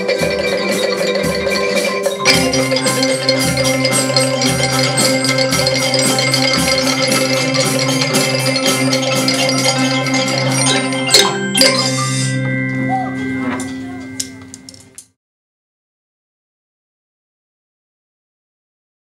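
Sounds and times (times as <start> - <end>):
xylophones and glockenspiel playing: 0.0 - 15.0
low bass bar notes: 2.2 - 13.4.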